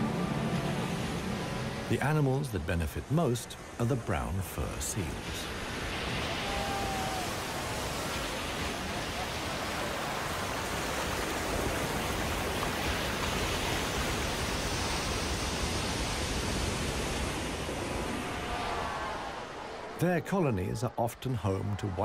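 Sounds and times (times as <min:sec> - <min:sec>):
surf breaking over rocks: 0:03.9 - 0:19.9.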